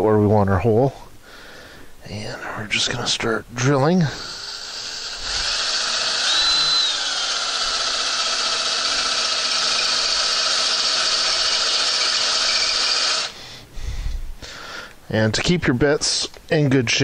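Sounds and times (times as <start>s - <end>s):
cordless drill boring metal: 4.2s - 13.4s.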